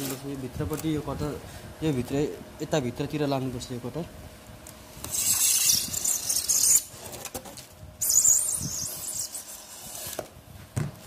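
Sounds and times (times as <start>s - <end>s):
blade scraping through foil and foam: 0.0s - 0.4s, 5.0s - 10.3s.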